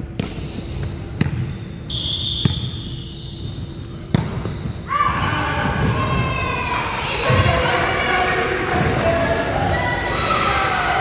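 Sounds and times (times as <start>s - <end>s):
shoe squeal: 1.2s - 4.9s
volleyball hits: 4.0s - 4.6s.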